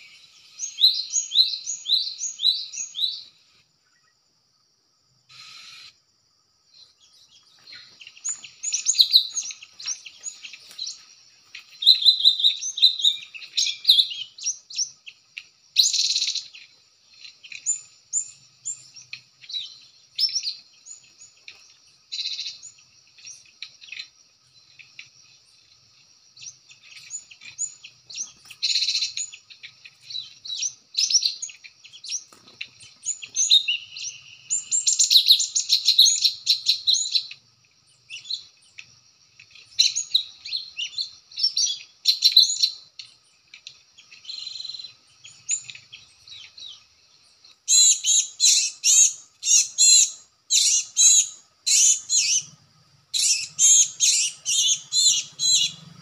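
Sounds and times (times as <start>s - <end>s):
birds chirping: 0.0s - 4.2s, 5.3s - 6.0s, 6.7s - 56.0s.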